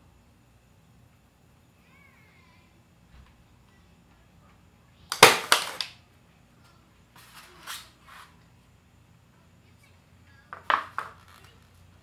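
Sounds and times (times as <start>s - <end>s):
pin nailer firing: 5.1s - 5.9s.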